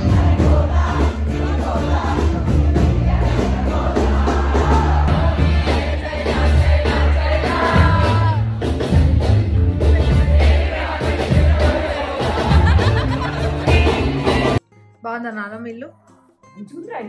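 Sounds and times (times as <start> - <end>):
heavy bass: 0.0 - 14.6
live band playing: 0.0 - 17.0
audience shouting and whooping: 11.4 - 14.6.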